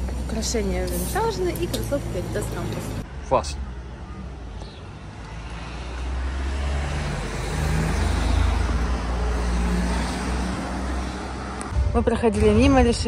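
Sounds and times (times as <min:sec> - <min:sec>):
motor vehicle passing: 0:04.8 - 0:11.7.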